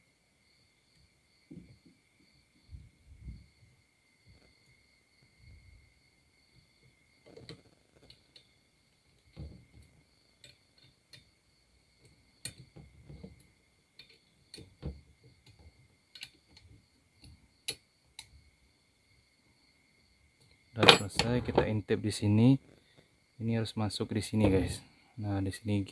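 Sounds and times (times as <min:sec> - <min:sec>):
metal parts clicking and tapping: 0:10.4 - 0:11.3, 0:12.4 - 0:18.3, 0:20.8 - 0:21.7.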